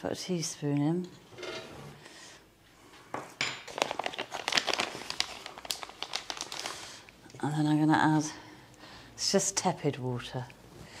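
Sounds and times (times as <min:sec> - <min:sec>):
plastic packet crinkling: 0:03.7 - 0:07.1.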